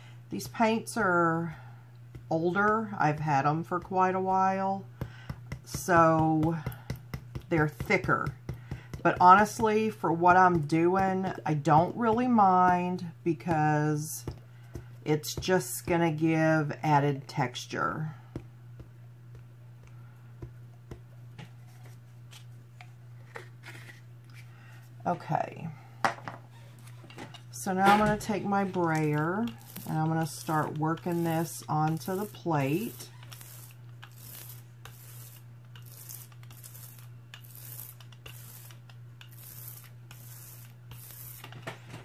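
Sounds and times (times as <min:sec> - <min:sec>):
low electrical hum: 0:00.0 - 0:42.0
rubber brayer scraping hiss: 0:29.2 - 0:41.6.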